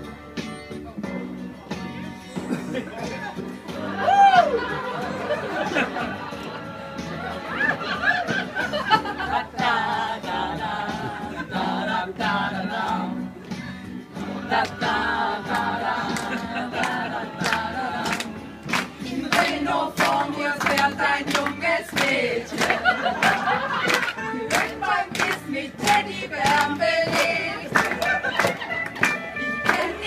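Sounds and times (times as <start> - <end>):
women singing together: 3.9 - 13.3, 14.2 - 28.6, 29.4 - 30.0
sharp rhythmic taps: 24.5 - 29.9.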